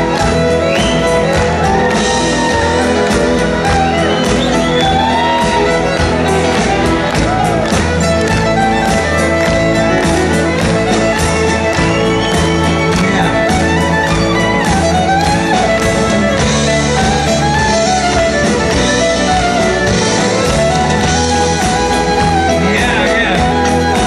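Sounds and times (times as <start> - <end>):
drums keeping steady beat: 0.0 - 24.0
fiddle melody: 0.0 - 24.0
strummed guitars: 0.0 - 24.0.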